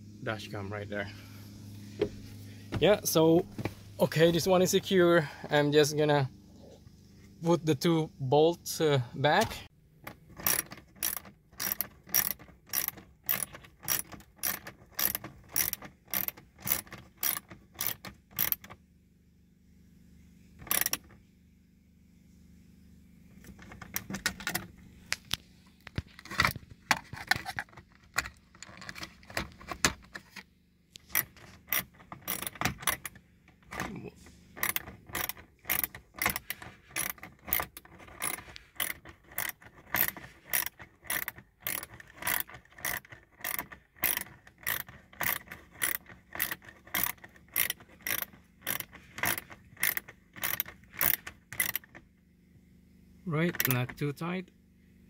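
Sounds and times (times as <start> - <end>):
ratchet clicking: 10.0 - 18.8, 20.6 - 21.2, 31.0 - 33.8, 34.6 - 52.0.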